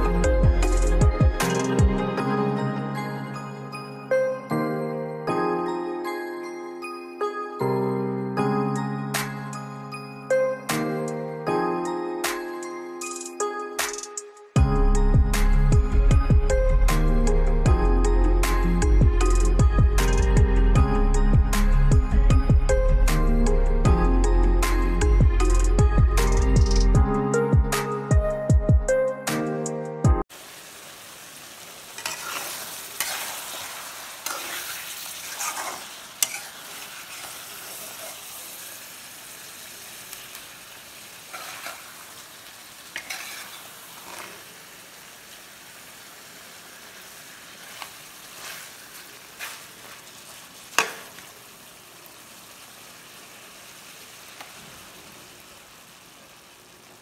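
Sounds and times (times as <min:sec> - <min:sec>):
background music: 0:00.0 - 0:30.2
curry sizzling in a pan: 0:30.3 - 0:57.0
spatula scraping metal pan: 0:32.0 - 0:38.4, 0:41.3 - 0:42.0, 0:42.9 - 0:44.5, 0:49.4 - 0:50.0.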